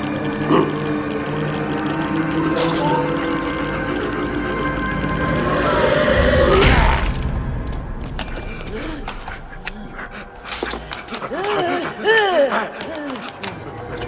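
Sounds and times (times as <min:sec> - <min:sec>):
tense horror music: 0:00.0 - 0:14.0
guttural vocal sounds: 0:00.5 - 0:00.8.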